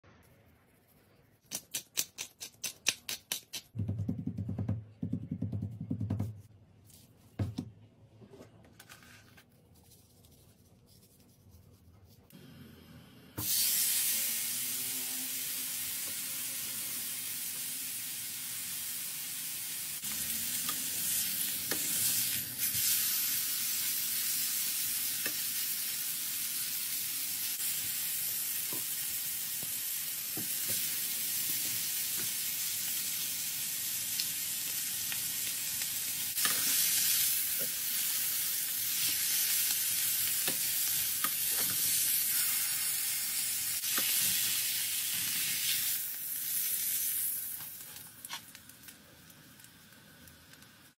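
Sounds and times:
steak sizzling in grill pan: 0:15.3 - 0:48.6.

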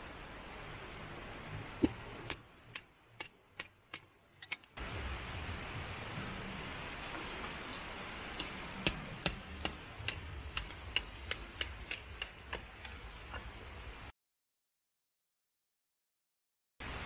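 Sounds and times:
steady rushing noise: 0:04.8 - 0:14.1.

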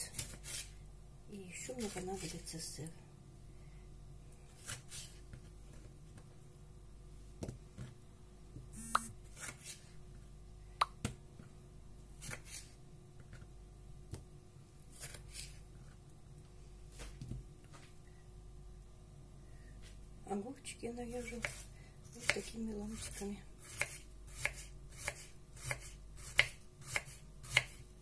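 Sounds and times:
knife cutting on wooden board: 0:12.2 - 0:12.7, 0:22.2 - 0:27.8.

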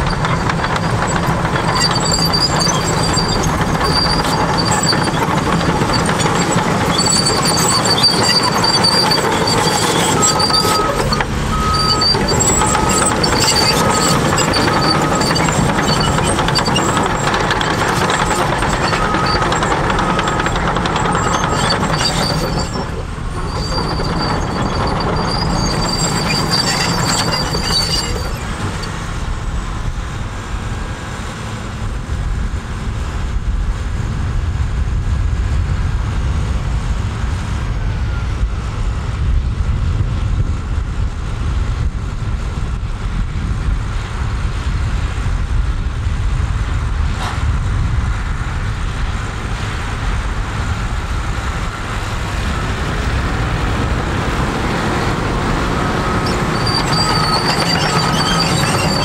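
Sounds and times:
high steady squeal: 0:00.0 - 0:29.3, 0:55.0 - 0:59.0
diesel engine rumble: 0:00.0 - 0:59.0.

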